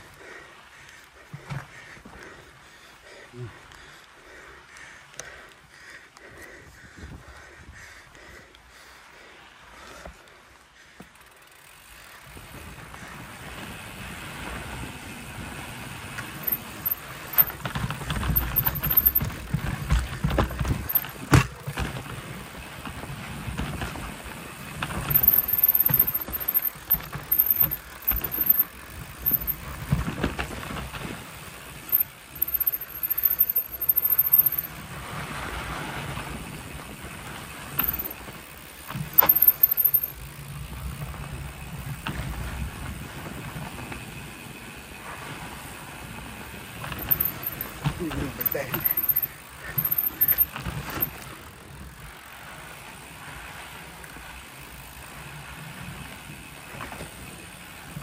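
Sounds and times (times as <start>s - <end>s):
wind rumbling on microphone: 6.7s - 7.8s
bike rattling and knocking: 10.9s - 58.0s
tyres rolling over dirt and rock: 12.2s - 58.0s.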